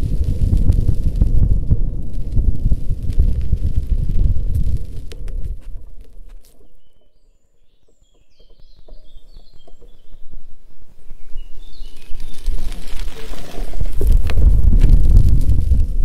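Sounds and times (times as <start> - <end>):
low wind rumble on microphone: 0.0 - 6.9, 8.4 - 16.0
songbird singing: 6.2 - 13.6.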